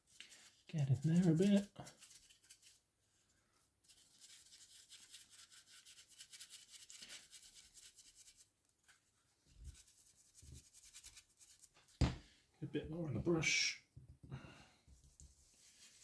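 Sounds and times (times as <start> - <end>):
brush bristles scrubbing: 0.0 - 2.8, 3.8 - 8.5, 9.6 - 11.7, 15.3 - 16.0.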